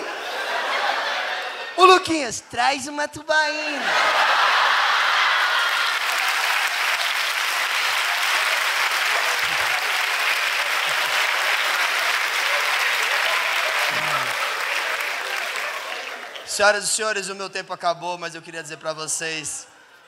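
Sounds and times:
audience applauding: 0:03.8 - 0:16.5.

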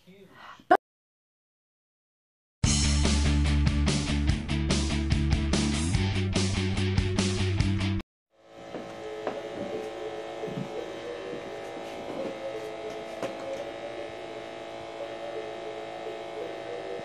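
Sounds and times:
vibration motor buzzing: 0:08.4 - 0:17.0.

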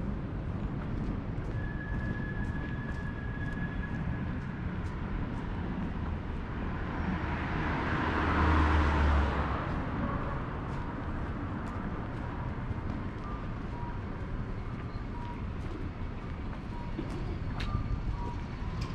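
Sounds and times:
walking footsteps: 0:10.7 - 0:18.9.

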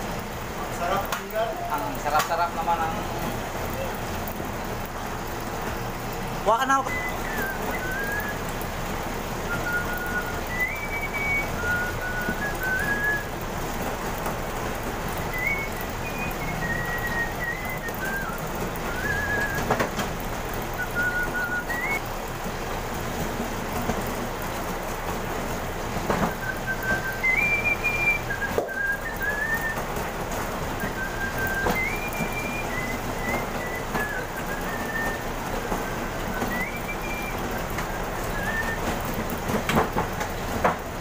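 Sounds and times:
dough roller motor whirring: 0:00.0 - 0:41.0
person whistling a tune: 0:06.8 - 0:08.4, 0:09.4 - 0:13.3, 0:15.2 - 0:19.9, 0:20.8 - 0:22.0, 0:26.2 - 0:29.9, 0:30.8 - 0:39.0.

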